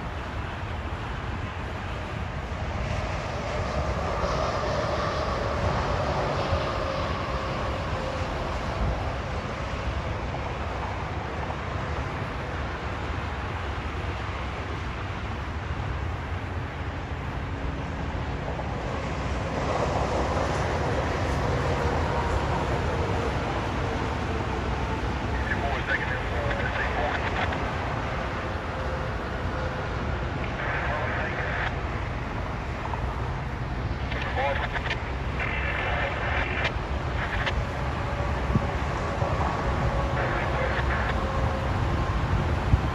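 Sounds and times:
highway traffic rumble: 0.0 - 42.9
trucks crossing overpass: 0.0 - 42.9
faint steady hum: 23.3 - 42.9.

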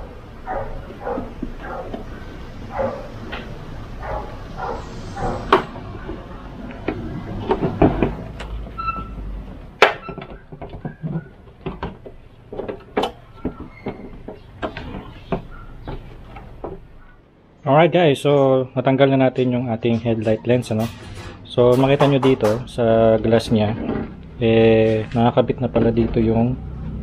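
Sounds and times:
plastic clicks creaks and knocks: 5.5 - 16.8.

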